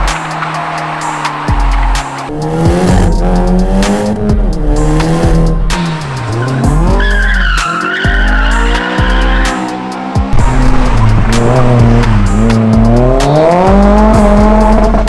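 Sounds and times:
car engine revving: 0.0s - 15.0s
music with deep bass beat: 0.0s - 15.0s
tyres squealing: 5.8s - 9.7s.

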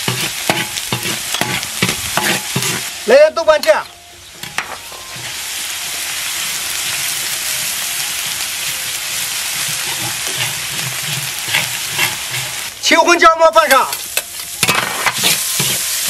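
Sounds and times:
metal ladle scraping wok: 0.0s - 3.0s, 9.5s - 12.8s, 13.9s - 16.0s
paste sizzling in hot oil: 0.0s - 3.2s, 4.4s - 16.0s.

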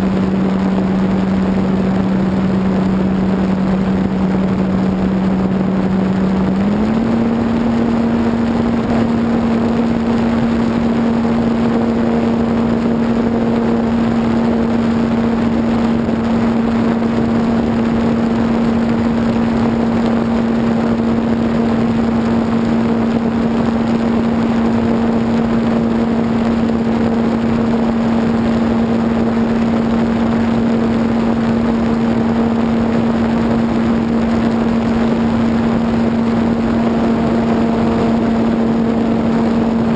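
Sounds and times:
model plane motor humming: 0.0s - 39.9s
rush of air: 31.2s - 39.9s.

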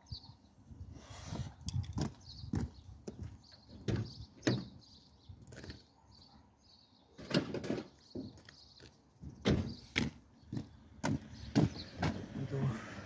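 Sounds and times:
knocks and clunks of engine parts: 3.1s - 4.8s, 9.2s - 12.4s.

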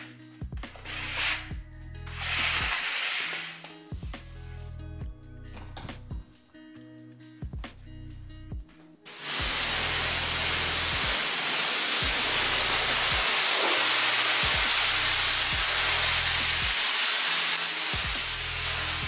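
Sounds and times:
background music: 0.0s - 19.0s
pressure washer spraying water: 9.1s - 19.0s.

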